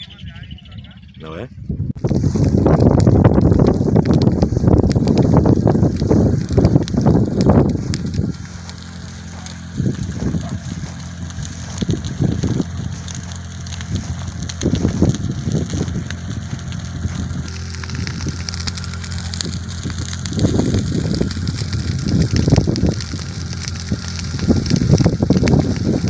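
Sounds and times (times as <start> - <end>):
brush fire crackling: 0.0 - 26.0
low hum: 0.0 - 26.0
wind gusting on microphone: 0.0 - 26.0.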